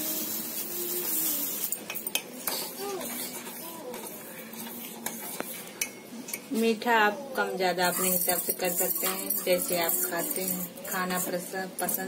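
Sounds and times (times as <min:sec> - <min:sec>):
sugar pouring hiss: 0:00.0 - 0:02.9
spoon stirring and clinking on pan: 0:01.6 - 0:06.6, 0:07.5 - 0:12.0.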